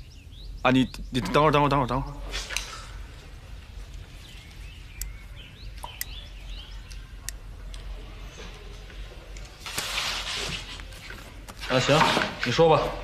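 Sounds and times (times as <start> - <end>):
small birds chirping: 0.0 - 9.4
low steady hum: 0.0 - 9.7.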